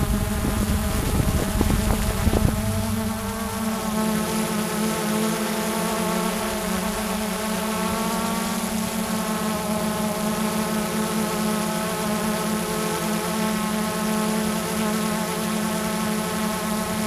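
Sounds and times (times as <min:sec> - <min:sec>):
drone propellers buzzing: 0:00.0 - 0:17.0.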